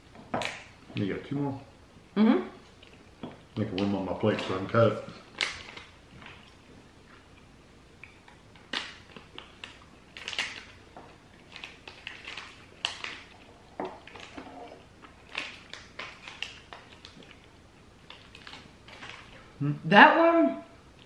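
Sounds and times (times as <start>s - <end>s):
plastic wrapper crinkling: 3.6s - 6.6s, 8.1s - 19.5s.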